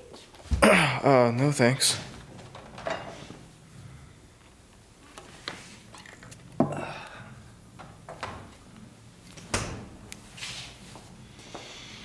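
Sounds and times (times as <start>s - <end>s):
refrigerator door shutting: 9.4s - 10.0s.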